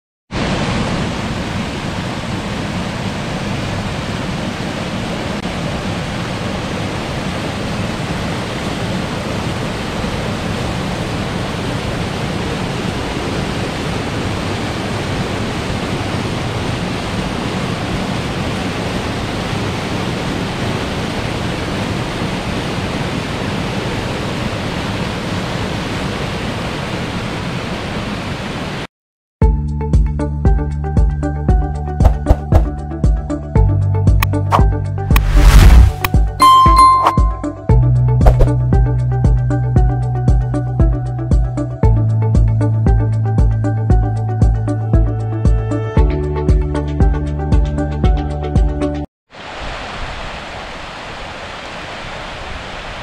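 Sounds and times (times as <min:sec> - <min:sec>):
running water rushing: 0:00.3 - 0:28.5, 0:34.5 - 0:37.0, 0:49.3 - 0:53.0.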